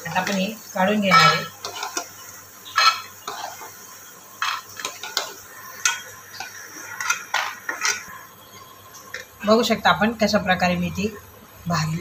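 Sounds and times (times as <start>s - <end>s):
oil sizzling: 0.0s - 12.0s
spoon scraping and clinking: 1.1s - 2.1s, 2.7s - 3.7s, 4.4s - 8.1s.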